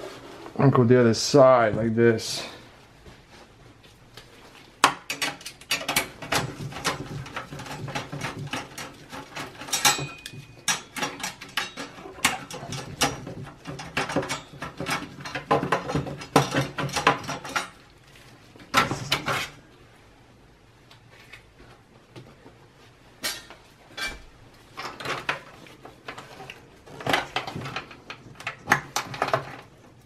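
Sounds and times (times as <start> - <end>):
plastic and metal parts rattling: 4.9 - 17.8, 24.8 - 30.0.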